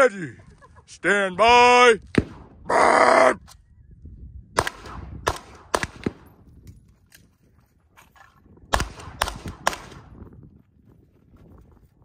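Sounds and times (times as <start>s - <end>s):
gunshots with echo: 4.6s - 6.3s, 8.7s - 10.2s.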